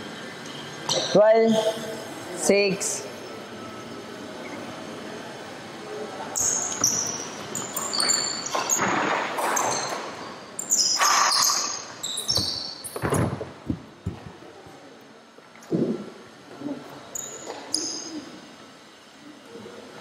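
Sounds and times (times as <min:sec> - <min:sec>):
sneakers squeaking on floor: 0:06.4 - 0:13.4, 0:17.1 - 0:18.3.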